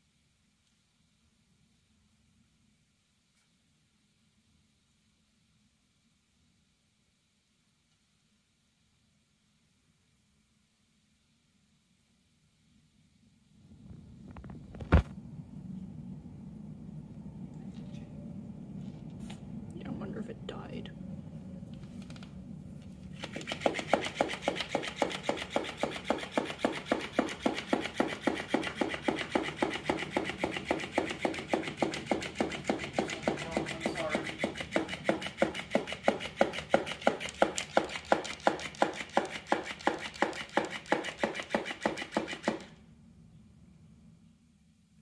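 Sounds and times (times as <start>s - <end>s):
toy fish slapping wooden floor: 23.2s - 42.7s.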